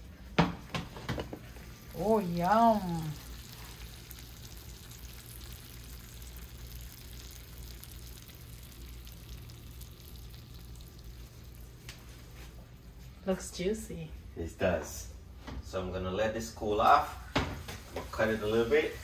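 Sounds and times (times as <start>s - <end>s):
low steady hum: 0.0s - 19.0s
pan juices sizzling and crackling: 0.1s - 13.0s.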